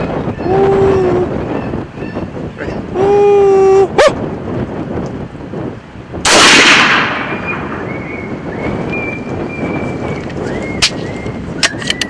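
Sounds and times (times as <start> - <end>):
rifle shot: 6.2 - 7.8.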